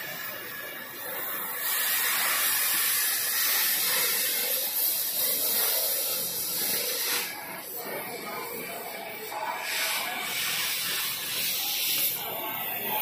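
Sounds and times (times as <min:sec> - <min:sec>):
cutting torch hissing: 0:00.0 - 0:13.0.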